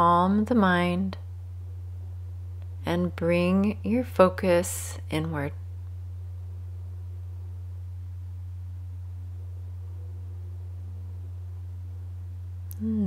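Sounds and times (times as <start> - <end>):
steady low drone tone: 0.0 - 13.0.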